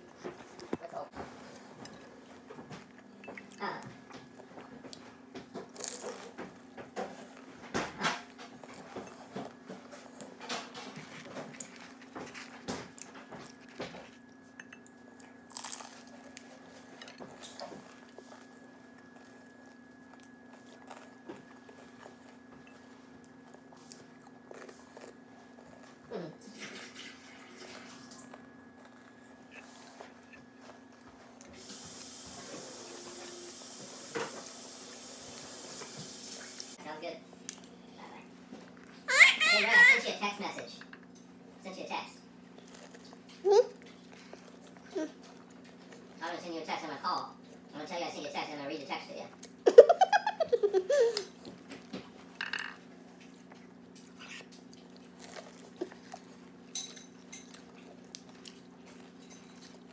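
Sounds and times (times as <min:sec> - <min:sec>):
chewing and biting: 0:02.7 - 0:26.1, 0:27.6 - 0:31.6, 0:42.5 - 0:46.2, 0:53.1 - 0:59.9
high wavering cry: 0:39.1 - 0:40.0.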